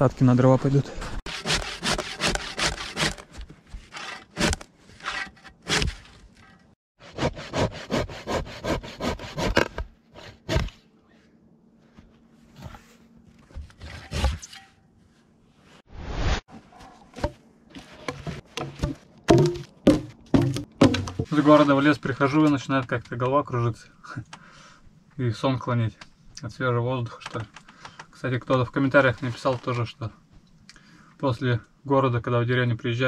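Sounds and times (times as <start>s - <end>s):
hand saw cutting log: 1.3s - 6.1s, 7.0s - 10.8s.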